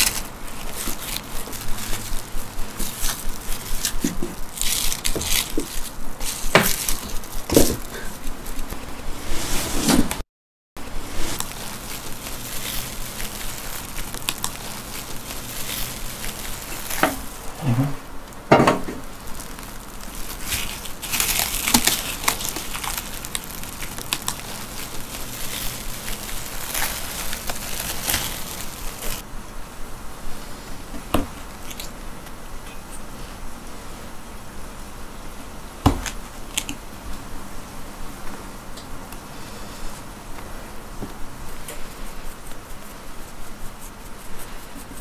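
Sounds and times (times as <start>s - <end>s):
cling film crinkling: 0.0s - 8.9s, 10.9s - 17.5s, 19.0s - 29.2s.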